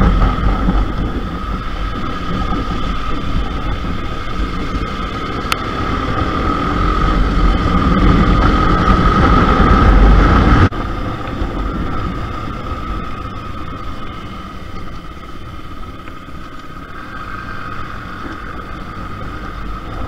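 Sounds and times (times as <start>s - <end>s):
motorcycle engine running: 0.0s - 20.0s
wind rush: 0.0s - 20.0s.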